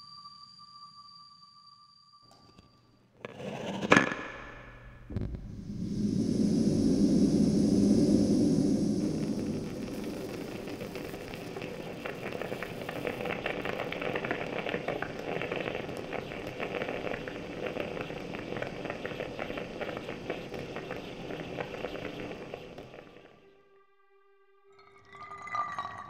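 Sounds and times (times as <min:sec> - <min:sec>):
coffee bubbling and gurgling: 0:05.1 - 0:23.2, 0:24.8 - 0:26.0.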